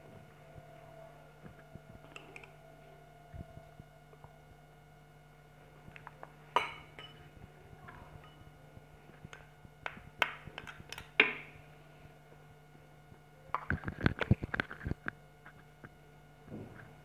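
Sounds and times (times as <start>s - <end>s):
metal spoon clinking on glass: 6.6s - 7.2s.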